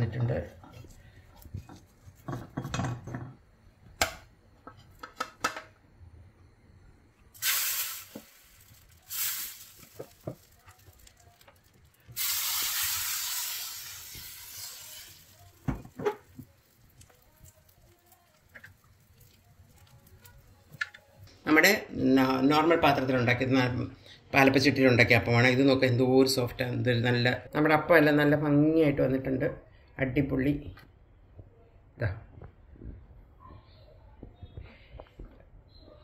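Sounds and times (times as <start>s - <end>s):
batter sizzling in a hot pan: 7.3s - 20.9s.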